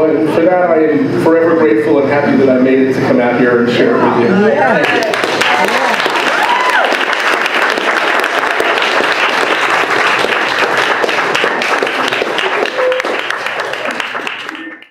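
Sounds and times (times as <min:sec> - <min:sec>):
audience clapping: 0:04.7 - 0:14.9.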